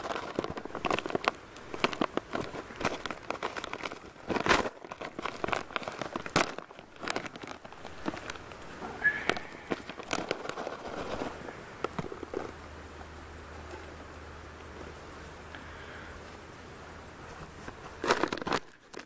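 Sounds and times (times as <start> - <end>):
foil pouch crinkling and tearing: 0.0 - 12.5, 17.5 - 19.0.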